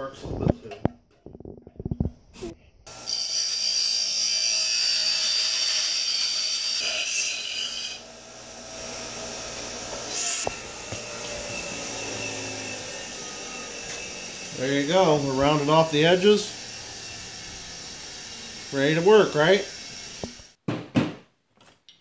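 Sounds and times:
bench grinder grinding metal: 0:02.9 - 0:20.6
grinder running unloaded: 0:07.9 - 0:20.5.

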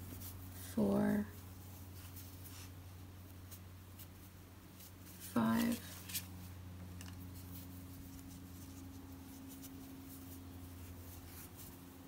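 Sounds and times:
low steady hum: 0:00.0 - 0:12.0
crochet hook scratching yarn: 0:07.3 - 0:12.0.

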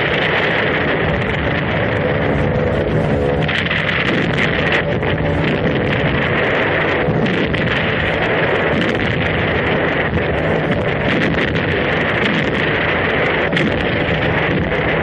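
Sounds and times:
aircraft piston engines droning: 0:00.0 - 0:15.0
loud rushing airflow: 0:00.0 - 0:15.0.

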